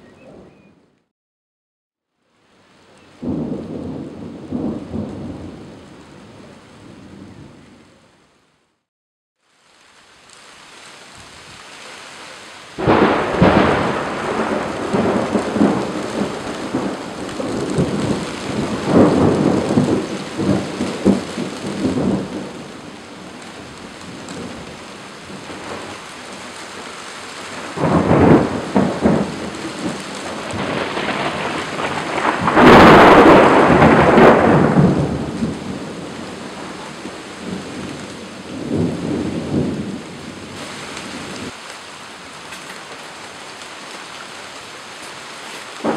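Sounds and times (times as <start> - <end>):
steady rain: 2.1 - 45.9
thunder rolling: 3.2 - 7.9, 12.8 - 24.6, 27.5 - 41.5.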